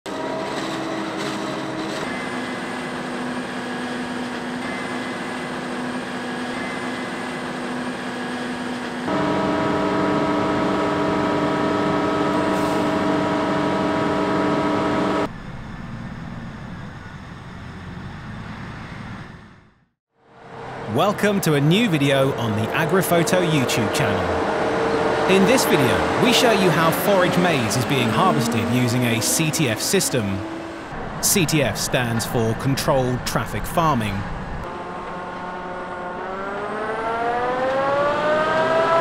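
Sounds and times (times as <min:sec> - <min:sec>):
harvesting machinery humming and whining: 0:00.1 - 0:39.0.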